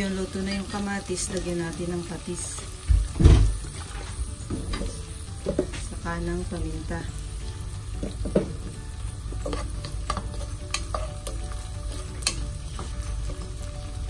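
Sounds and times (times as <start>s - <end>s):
food sizzling in a pan: 0.0s - 14.0s
knocks against the pan: 8.0s - 8.7s
spatula scraping a pan: 9.3s - 13.6s.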